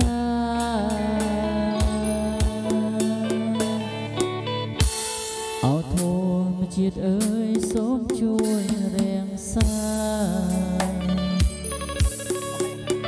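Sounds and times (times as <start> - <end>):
sliding wavering lead melody: 0.6 - 5.4, 11.0 - 13.0.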